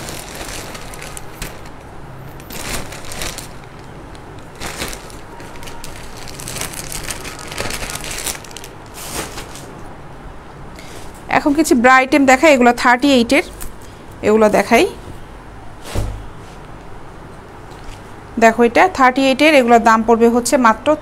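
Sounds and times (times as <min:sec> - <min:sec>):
garments and packaging rustling: 0:00.0 - 0:09.9.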